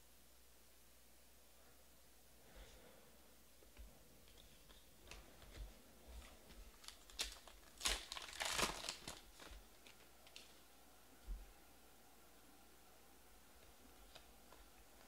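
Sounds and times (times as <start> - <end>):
card pack wrapper crinkling: 6.7 - 10.6.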